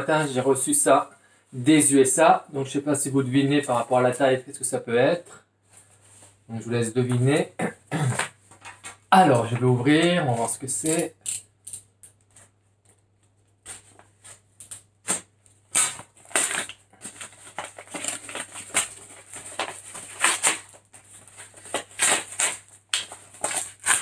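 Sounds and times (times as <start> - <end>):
paper mailer being torn open: 14.7 - 24.0.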